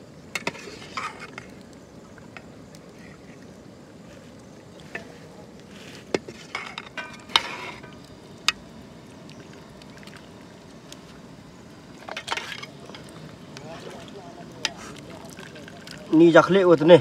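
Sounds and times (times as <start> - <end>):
steady low hiss: 0.0 - 17.0.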